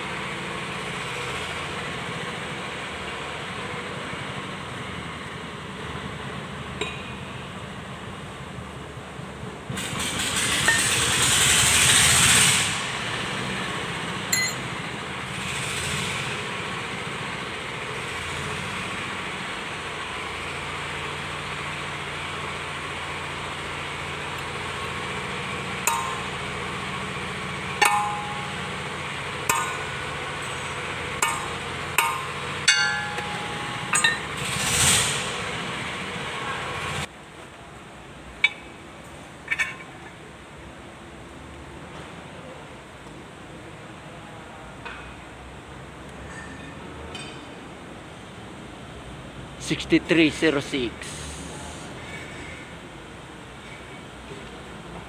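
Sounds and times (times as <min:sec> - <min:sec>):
steady background noise: 0:00.0 - 0:55.0
steel tools clinking on metal: 0:14.3 - 0:14.8, 0:29.5 - 0:34.6, 0:39.5 - 0:40.0.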